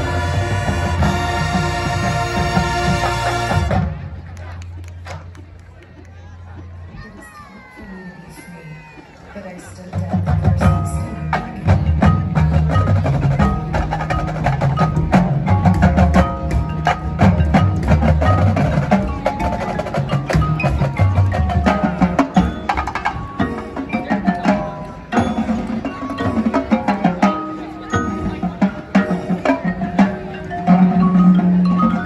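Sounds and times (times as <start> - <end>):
marching band playing: 0.0 - 5.5, 9.6 - 32.0
mallet percussion and drums: 0.0 - 32.0.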